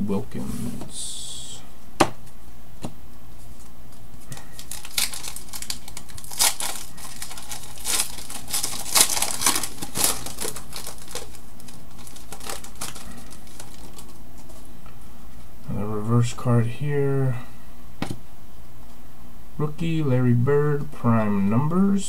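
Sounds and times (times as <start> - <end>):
plastic wrapper crinkling: 4.3 - 14.7.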